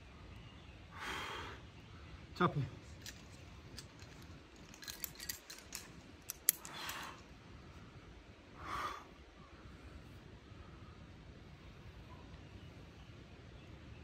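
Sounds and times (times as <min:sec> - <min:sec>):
climbing gear clicking: 0:02.9 - 0:07.2.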